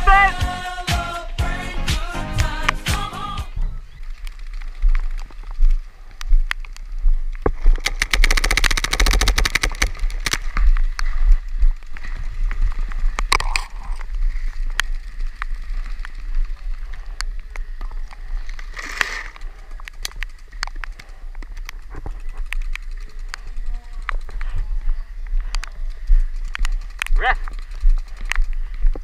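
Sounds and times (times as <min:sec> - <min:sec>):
paintball markers firing: 0:07.7 - 0:10.6.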